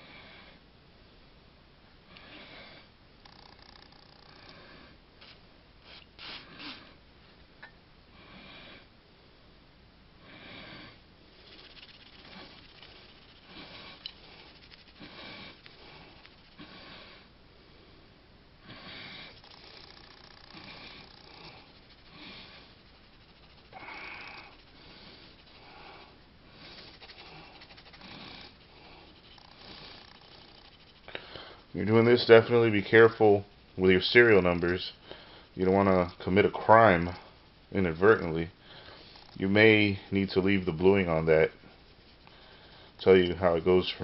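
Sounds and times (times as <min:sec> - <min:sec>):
cloth rubbing on metal: 0:05.2 - 0:06.9, 0:11.4 - 0:16.9, 0:19.2 - 0:44.0.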